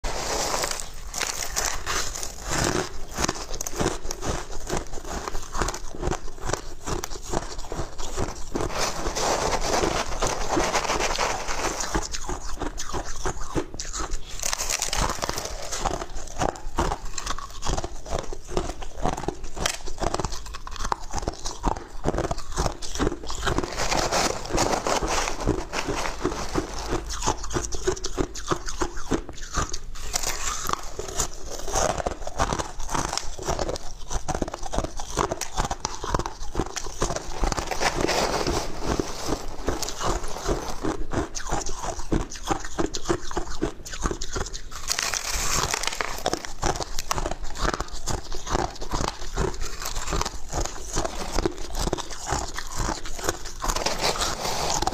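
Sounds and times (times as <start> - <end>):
crushed ice chewed: 0.0 - 54.9
metal spoon scooping ice: 0.1 - 5.7, 7.3 - 12.4, 22.6 - 27.6, 36.6 - 41.0, 44.8 - 47.1, 52.7 - 54.9.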